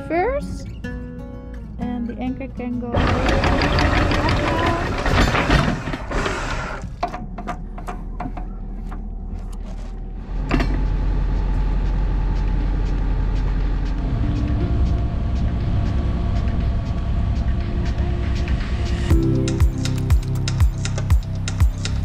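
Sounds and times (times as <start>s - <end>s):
boat engine low rumble: 6.9s - 22.0s.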